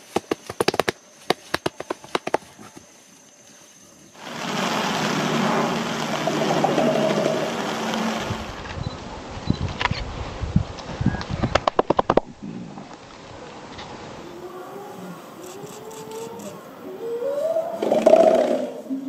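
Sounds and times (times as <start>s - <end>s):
gorilla beating its chest: 0.0s - 2.8s
steady rushing noise: 4.2s - 12.4s.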